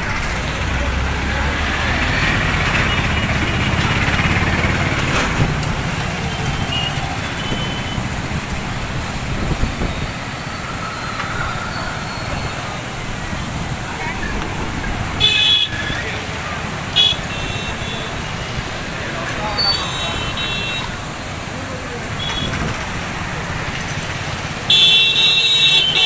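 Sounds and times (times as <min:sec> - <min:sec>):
road traffic: 0:00.0 - 0:26.0
rushing river water: 0:00.0 - 0:26.0.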